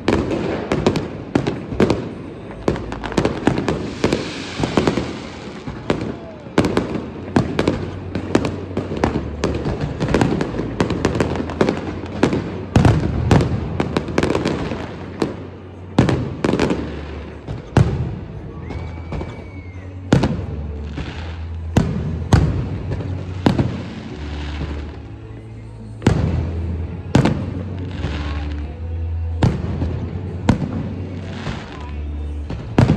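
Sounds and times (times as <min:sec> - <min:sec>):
fireworks bangs: 0:00.0 - 0:32.9
firework whistle: 0:02.8 - 0:08.5, 0:18.4 - 0:21.7.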